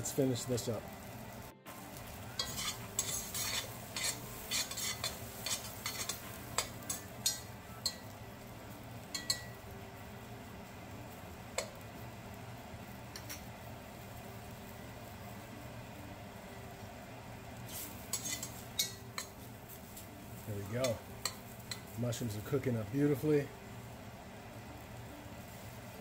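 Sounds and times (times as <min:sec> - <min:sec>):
mushrooms sizzling in a pan: 0:00.0 - 0:26.0
utensil scraping a pan: 0:02.2 - 0:07.5, 0:17.7 - 0:19.4.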